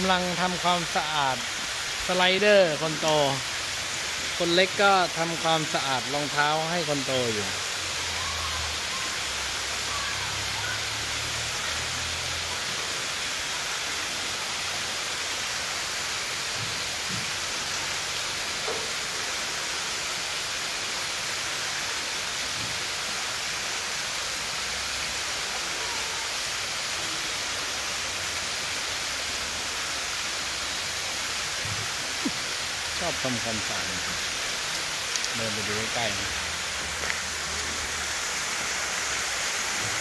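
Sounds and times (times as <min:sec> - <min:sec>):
water falling into a pool: 0:00.0 - 0:40.0.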